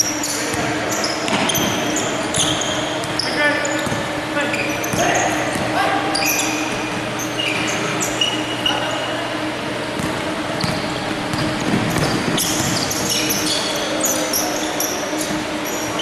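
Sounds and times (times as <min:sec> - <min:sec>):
sneakers squeaking: 0:00.0 - 0:16.0
basketball bouncing: 0:00.5 - 0:03.2, 0:10.0 - 0:13.1.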